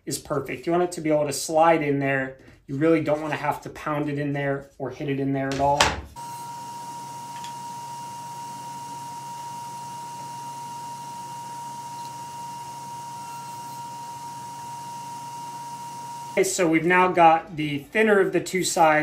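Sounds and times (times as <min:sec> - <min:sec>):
electronic test tone: 0:06.2 - 0:16.4.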